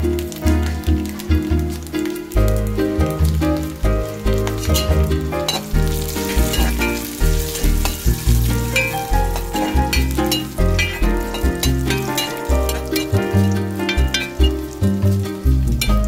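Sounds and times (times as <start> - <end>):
background music with beat: 0.0 - 16.0
food sizzling in a pan: 0.0 - 16.0
spatula scraping a pan: 6.2 - 14.6.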